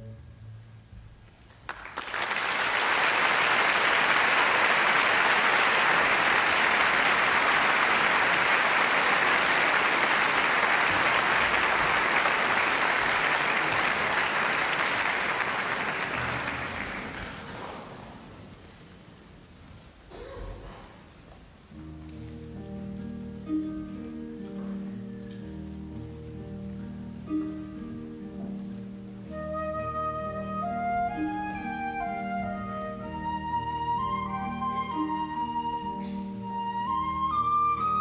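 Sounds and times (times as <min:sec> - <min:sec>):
audience applauding: 0:01.5 - 0:18.6.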